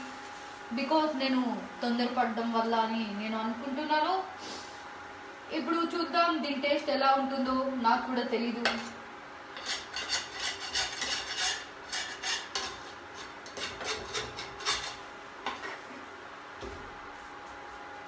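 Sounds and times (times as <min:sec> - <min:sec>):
metal spatula scraping a pan: 0:09.6 - 0:15.0.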